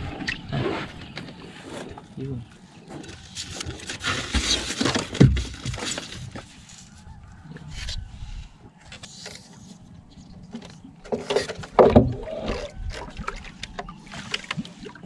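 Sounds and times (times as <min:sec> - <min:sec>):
water splashing and sloshing: 0:02.8 - 0:07.1, 0:09.1 - 0:15.0.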